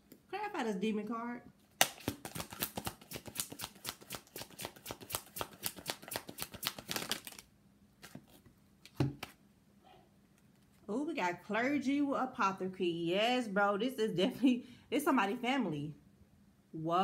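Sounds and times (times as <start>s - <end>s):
cards being shuffled: 1.8s - 9.4s.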